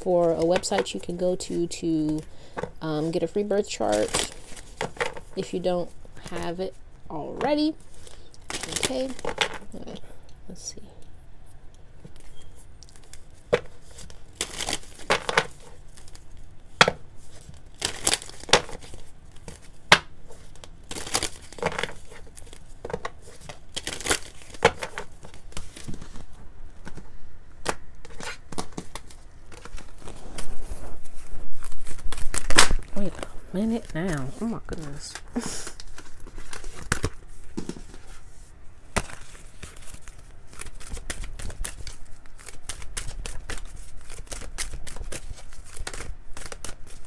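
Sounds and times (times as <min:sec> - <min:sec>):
cards being shuffled: 0:17.2 - 0:38.3, 0:38.9 - 0:47.0.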